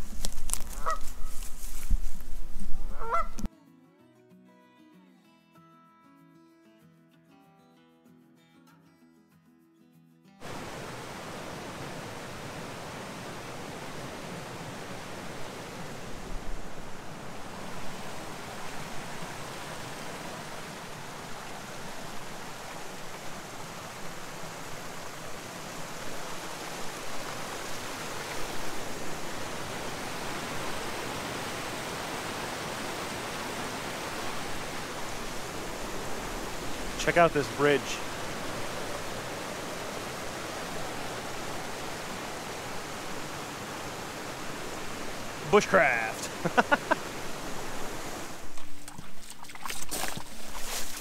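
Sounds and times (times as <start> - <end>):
water rushing over rocks: 10.4 - 51.0.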